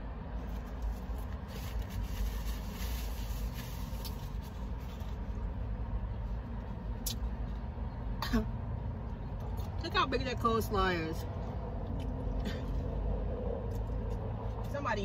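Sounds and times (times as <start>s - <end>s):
paper packaging rustling: 0.4s - 5.4s.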